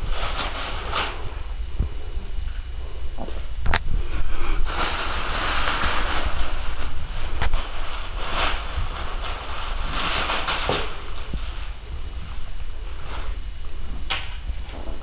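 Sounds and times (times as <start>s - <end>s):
plastic bag crinkling: 4.6s - 13.4s.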